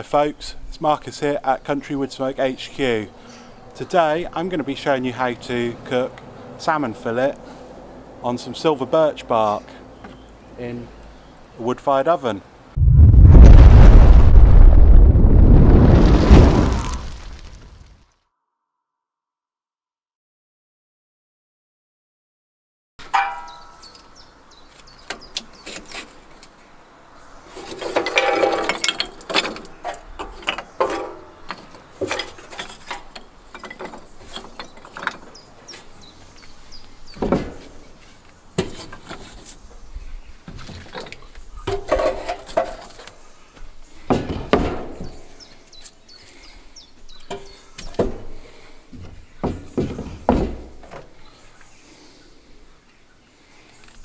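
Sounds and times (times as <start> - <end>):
wood clattering and knocking: 27.5 - 35.9, 37.1 - 38.0, 38.6 - 39.5, 40.5 - 43.1, 44.1 - 45.2, 47.2 - 51.2.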